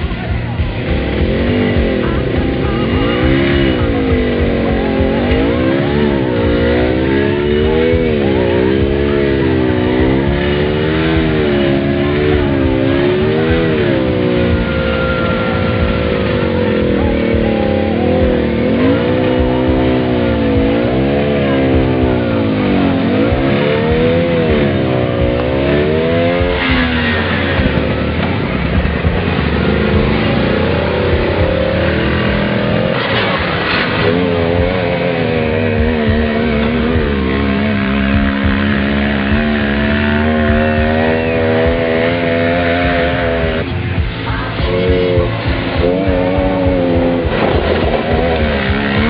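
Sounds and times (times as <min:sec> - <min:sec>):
small vehicle engine revving: 0:00.0 - 0:49.0.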